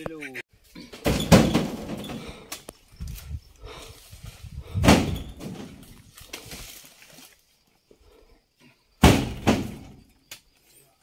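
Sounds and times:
fruit bunches thudding into truck bed: 0:00.8 - 0:02.4, 0:04.7 - 0:06.8, 0:09.0 - 0:10.1.

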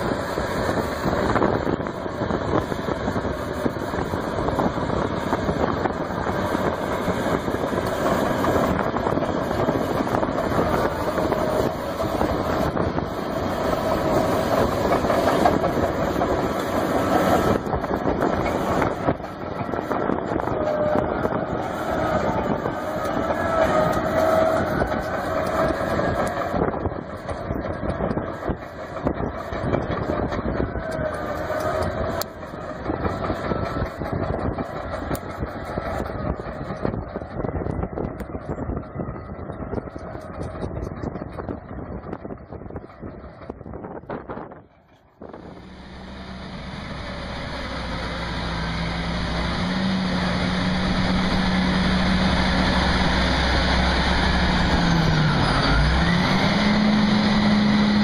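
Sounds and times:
bulldozer diesel engine under load: 0:00.0 - 0:58.0.

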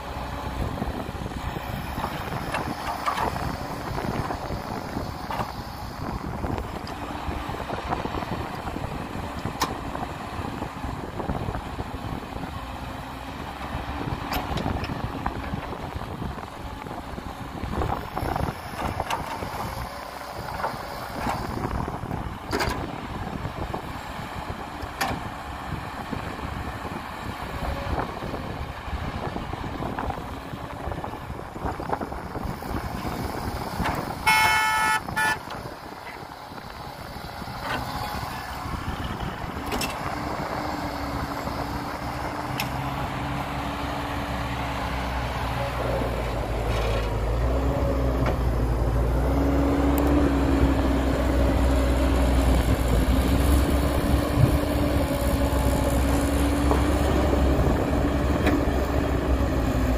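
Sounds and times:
diesel engine droning: 0:00.0 - 0:59.9
heavy diesel machinery working: 0:00.0 - 0:59.9
horn sounding: 0:34.2 - 0:35.5.

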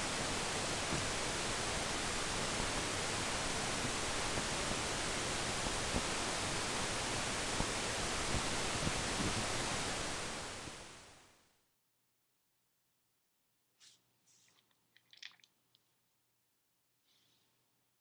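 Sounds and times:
static hiss: 0:00.0 - 0:11.5.

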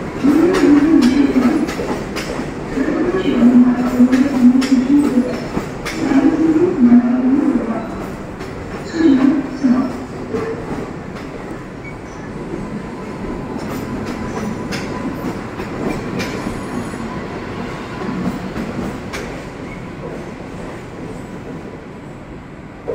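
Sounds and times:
wheels clicking on track: 0:00.0 - 0:06.4, 0:09.9 - 0:16.7
train rumbling past: 0:00.0 - 0:22.9.

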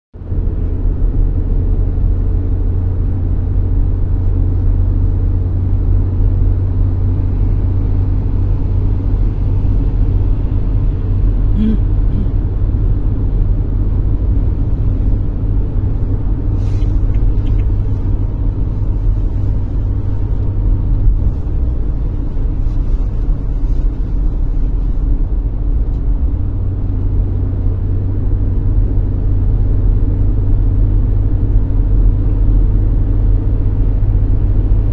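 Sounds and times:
car engine and tyre rumble: 0:00.1 - 0:34.9.

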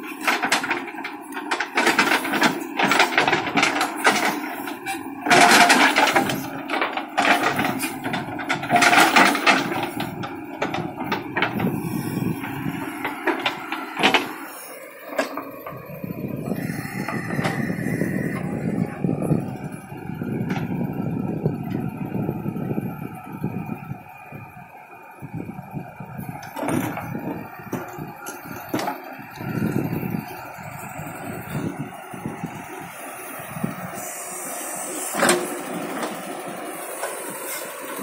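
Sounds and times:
backhoe engine running: 0:00.0 - 0:38.0.

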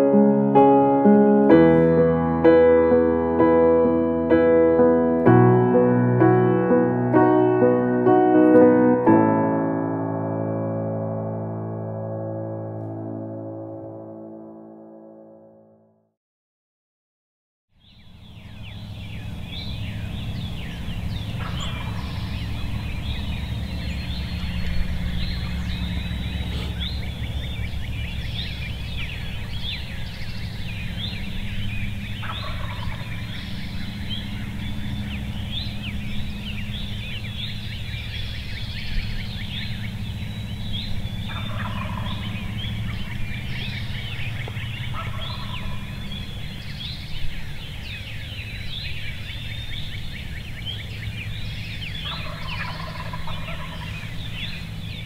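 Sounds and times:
songbirds singing: 0:17.7 - 0:55.0
low rumble: 0:18.0 - 0:52.4
turkey gobbling: 0:20.6 - 0:27.6, 0:32.1 - 0:35.2, 0:41.2 - 0:46.4, 0:51.8 - 0:54.6.

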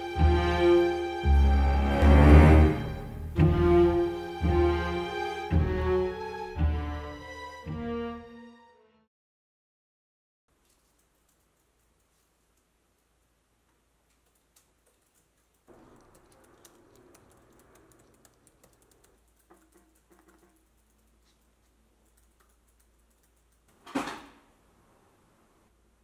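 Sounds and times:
laptop keyboard typing: 0:14.2 - 0:23.7.

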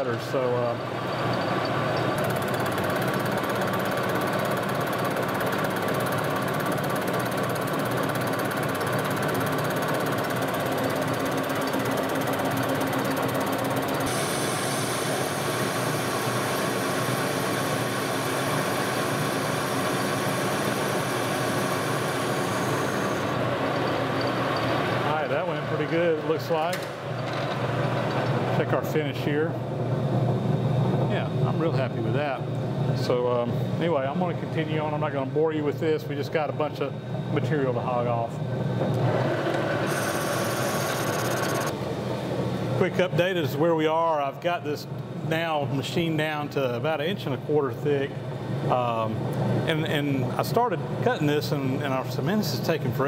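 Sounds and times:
lathe cutting metal: 0:39.8 - 0:41.7.

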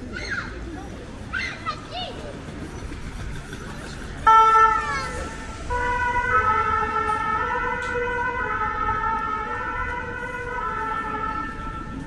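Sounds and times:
street noise: 0:00.0 - 0:12.0
emergency vehicle siren: 0:04.2 - 0:12.0.

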